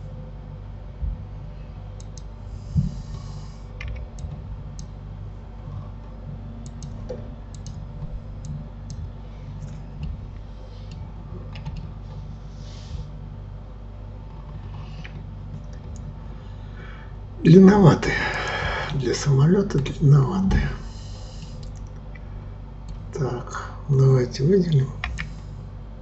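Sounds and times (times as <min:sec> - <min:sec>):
steady low hum: 0:00.0 - 0:26.0
dull low thump: 0:01.0 - 0:01.3
keyboard and mouse clicking: 0:02.0 - 0:02.3, 0:06.6 - 0:07.8, 0:10.9 - 0:11.9, 0:25.0 - 0:25.3.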